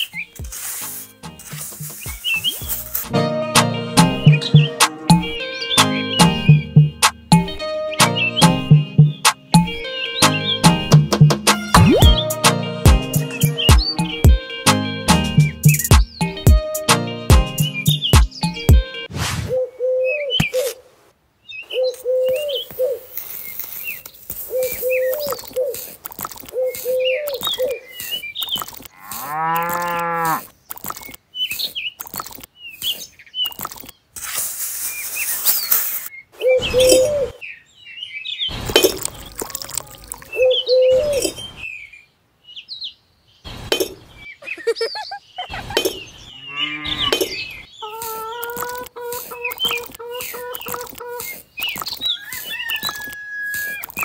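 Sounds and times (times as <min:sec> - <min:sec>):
birds chirping: 0:00.0 - 0:20.8, 0:21.4 - 0:54.0
scattered clicks: 0:23.2 - 0:34.0, 0:48.0 - 0:54.0
cow mooing: 0:29.0 - 0:30.4, 0:46.3 - 0:47.4.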